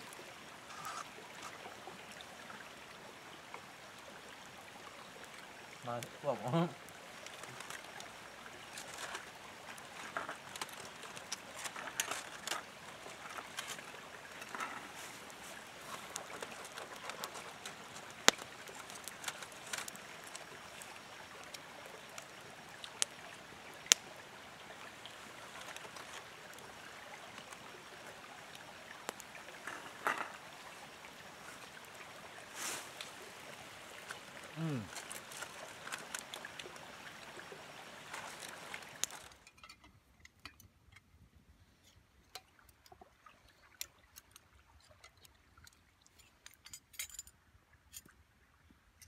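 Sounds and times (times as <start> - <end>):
creek rushing: 0.0 - 39.4.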